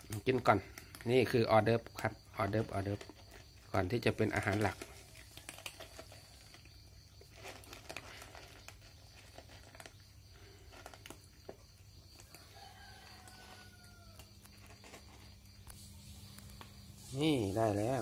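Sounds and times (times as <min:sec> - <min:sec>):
cats chewing and lapping: 0:00.0 - 0:18.0
faint rooster crowing: 0:12.1 - 0:14.6.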